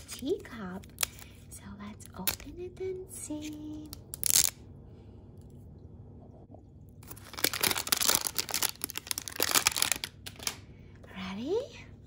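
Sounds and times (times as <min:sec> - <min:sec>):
plastic foil wrapper tearing: 0:03.9 - 0:04.6, 0:07.0 - 0:10.6.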